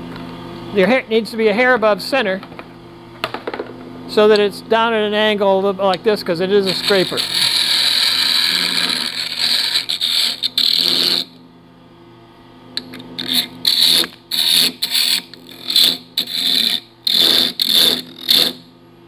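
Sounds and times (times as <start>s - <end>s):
scraper cutting wood on a lathe: 6.6s - 11.3s, 13.2s - 18.6s.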